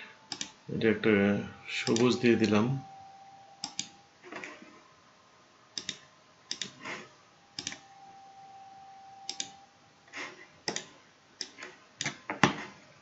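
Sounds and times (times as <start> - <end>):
computer mouse clicks: 0.3 - 0.6, 3.6 - 3.9, 5.8 - 6.8, 7.6 - 7.8, 9.3 - 9.6, 10.6 - 12.2.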